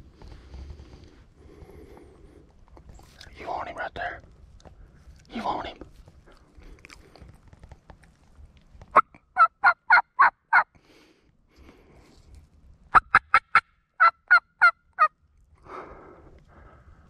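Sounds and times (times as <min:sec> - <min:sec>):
turkey yelping: 0:09.0 - 0:10.7, 0:12.9 - 0:15.1.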